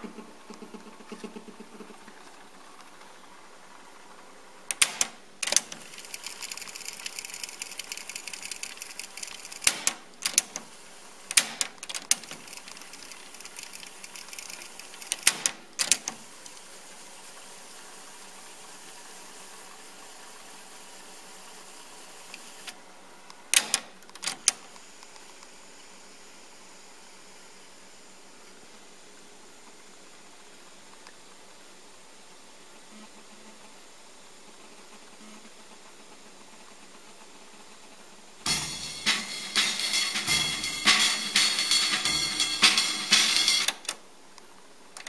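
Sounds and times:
tape mechanism whirring: 4.7 - 16.6, 38.5 - 44.0.

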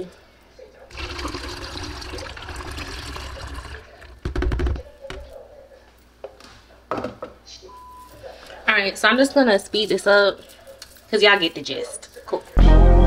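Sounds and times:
juice pouring into plastic jug: 0.9 - 4.5
plastic cup clattering: 1.0 - 4.9.

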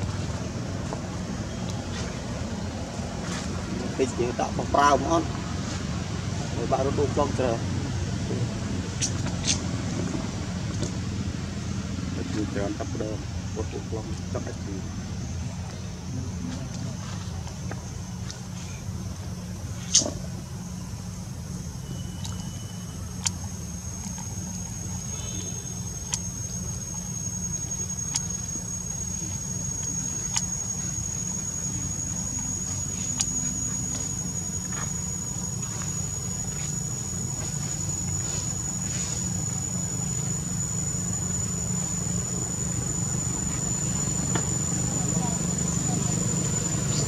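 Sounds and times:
high whine of insects: 0.0 - 47.0
steady low hum: 0.0 - 47.0
sharp tick: 26.0 - 26.3, 28.0 - 28.4.

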